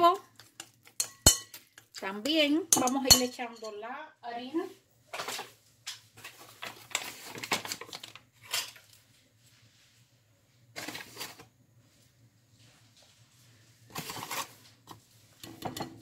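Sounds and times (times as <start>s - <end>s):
flour scraping and rustling: 12.6s - 15.4s.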